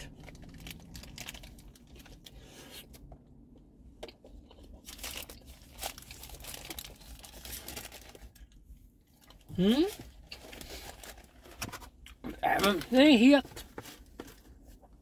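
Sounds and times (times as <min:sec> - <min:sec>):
wrapper crinkling: 0:00.0 - 0:02.3, 0:04.8 - 0:08.5.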